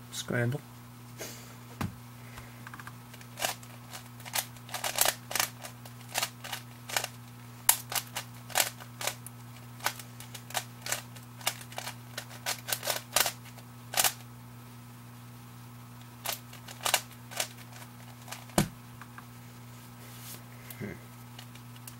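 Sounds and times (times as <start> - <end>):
faint steady hum: 0.0 - 21.9
plastic cube clacks: 2.7 - 7.1, 9.8 - 14.2.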